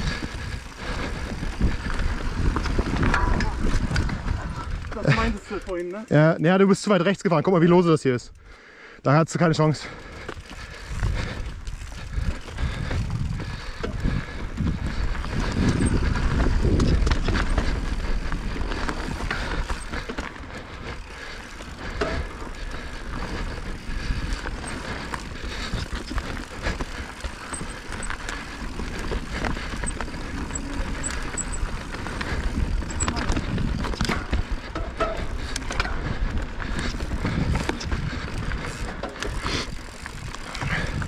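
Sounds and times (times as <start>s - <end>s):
wind rumble on microphone: 0.0s - 5.2s, 10.4s - 20.0s, 23.0s - 41.0s
bike rattling clicks: 0.0s - 7.2s, 9.9s - 41.0s
bike tyres on dirt and stones: 0.0s - 41.0s.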